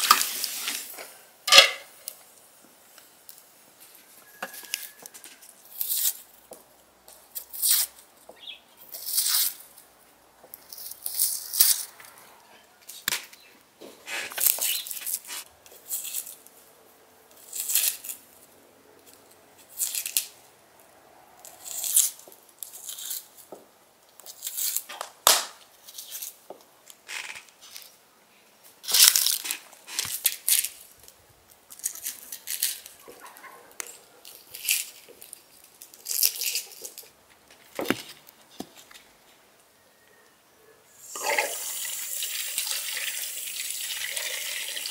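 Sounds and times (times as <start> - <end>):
onion skins tearing and crackling: 4.6 - 12.1, 14.1 - 16.6, 17.3 - 28.0, 28.7 - 39.0.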